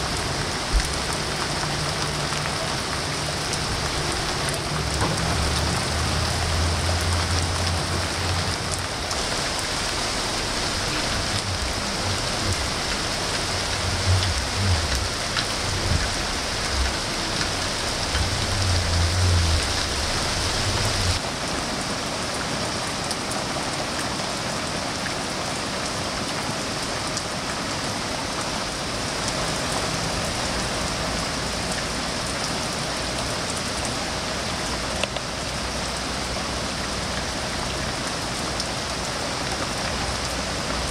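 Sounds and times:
rain on foliage: 0.0s - 40.9s
low rumble: 3.4s - 21.2s.

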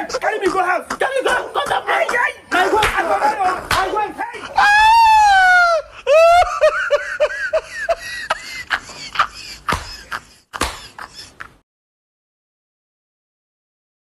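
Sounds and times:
person laughing: 2.6s - 11.6s.

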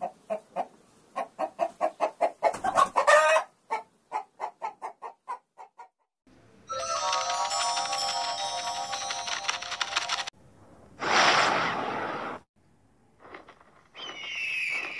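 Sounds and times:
chicken squawk: 0.0s - 5.9s
chicken clucking: 0.0s - 6.0s
music: 6.7s - 10.3s.

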